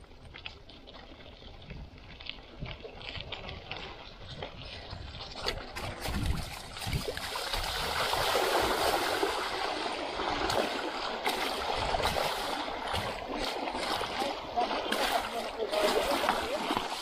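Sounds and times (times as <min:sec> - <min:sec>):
bike rattling over stones: 0:00.0 - 0:09.8
water splashing: 0:00.0 - 0:17.0.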